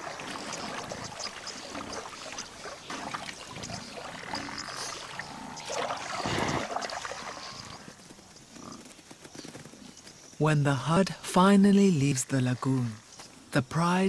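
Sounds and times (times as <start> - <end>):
mud squelching and water sloshing: 0.0 - 8.0.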